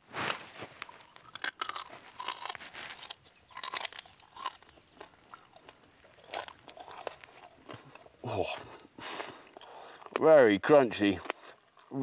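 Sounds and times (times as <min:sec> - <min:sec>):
beetle shell crunching: 0:00.8 - 0:08.2.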